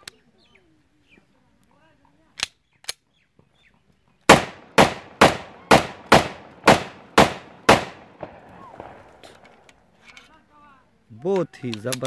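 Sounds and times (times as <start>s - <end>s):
pistol clicks: 2.3s - 3.0s, 4.3s - 9.8s
pistol shots: 4.3s - 9.6s.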